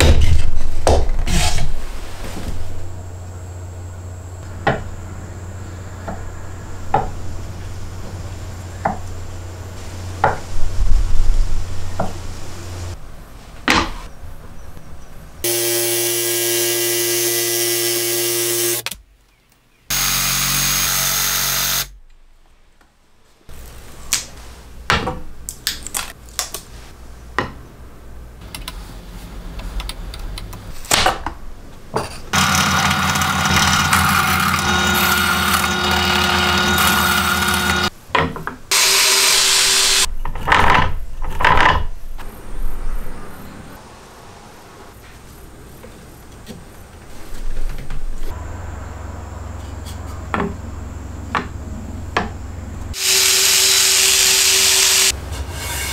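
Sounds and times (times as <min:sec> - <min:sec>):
cordless jigsaw running: 0:15.4 - 0:18.8, 0:19.9 - 0:21.9, 0:32.4 - 0:37.9, 0:38.7 - 0:40.1, 0:53.0 - 0:55.1
drill press starting: 0:32.4 - 0:37.9.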